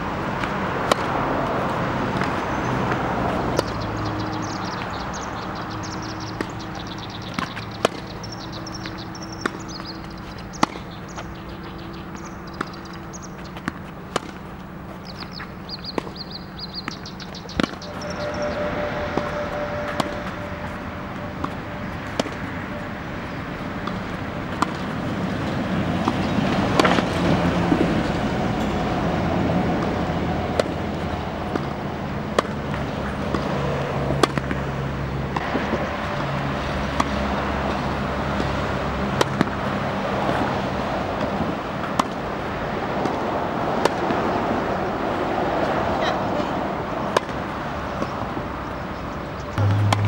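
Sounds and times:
low traffic hum: 0:00.0 - 0:50.0
tennis balls struck by rackets: 0:00.2 - 0:28.9, 0:29.7 - 0:36.0, 0:36.8 - 0:44.7, 0:47.1 - 0:48.2, 0:49.6 - 0:50.0
balls bouncing on hard court: 0:06.0 - 0:18.4, 0:49.6 - 0:50.0.

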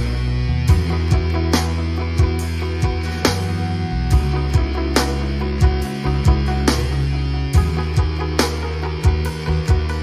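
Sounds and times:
instrumental music with plucked strings: 0:00.0 - 0:10.0.

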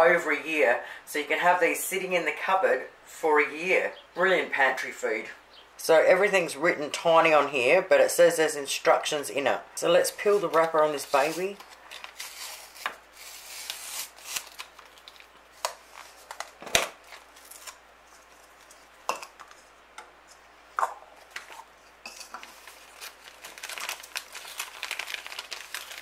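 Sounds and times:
foil sachet crinkling: 0:10.1 - 0:19.0, 0:22.1 - 0:26.0
paper wrapper peeling: 0:10.2 - 0:18.9, 0:22.4 - 0:26.0.

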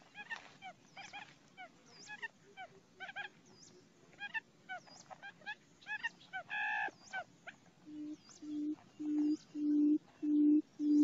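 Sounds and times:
drawn-out nasal bird call: 0:00.0 - 0:11.0
bird chirps: 0:03.0 - 0:11.0.

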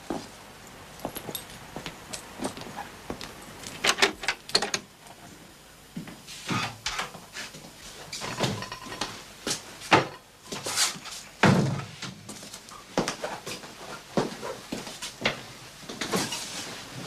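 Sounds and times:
footsteps: 0:00.0 - 0:00.4, 0:01.0 - 0:03.8
sharp clicks and rattles: 0:03.6 - 0:04.9.

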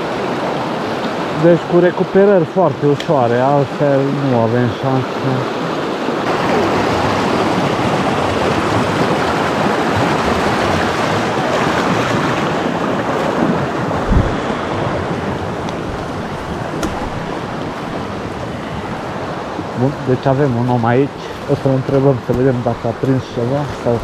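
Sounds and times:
river water rushing: 0:00.0 - 0:24.0
low thump on microphone: 0:14.0 - 0:14.5, 0:15.7 - 0:18.1.

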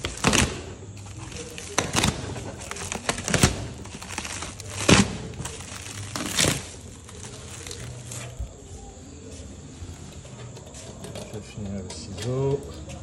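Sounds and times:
plastic film crinkling: 0:00.0 - 0:09.0.

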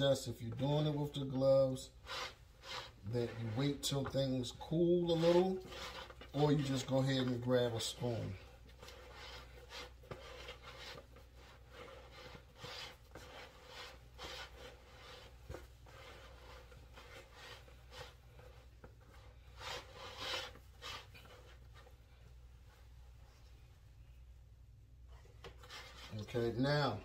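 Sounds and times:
hands mixing food in bowl: 0:00.5 - 0:21.7.

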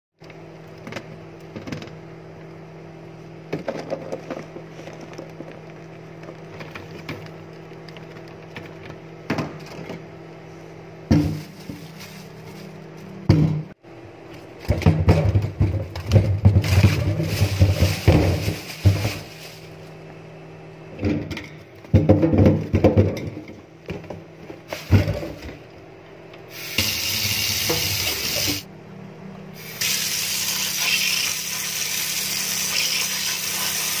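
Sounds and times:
produce knocking in metal sink: 0:13.3 - 0:13.7
tap water running: 0:26.6 - 0:28.6, 0:29.8 - 0:34.0.

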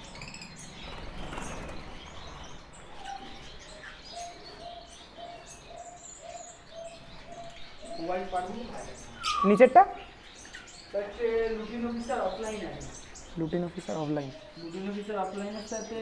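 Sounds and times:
birds chirping: 0:00.0 - 0:16.0.

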